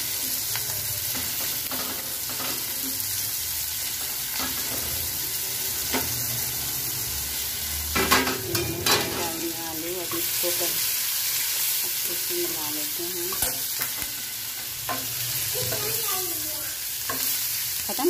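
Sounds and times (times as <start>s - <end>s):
vegetables sizzling in a pan: 0.0s - 18.0s
metal spatula scraping pan: 8.0s - 10.6s.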